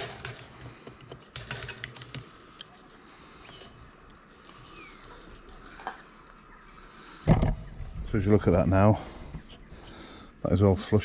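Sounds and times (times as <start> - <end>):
faint bird chirps: 2.3 - 8.3.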